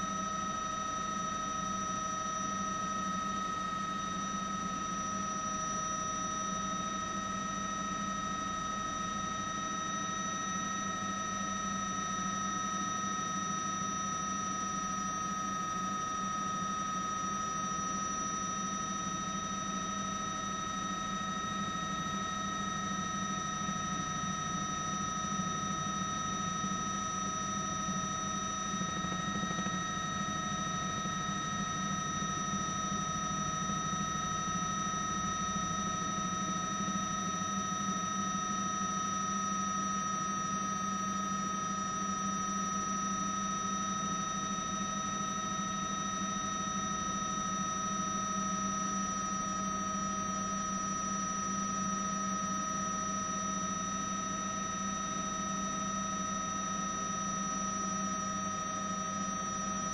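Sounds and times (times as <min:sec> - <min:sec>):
helicopter turbine drone: 0:13.6 - 0:39.5.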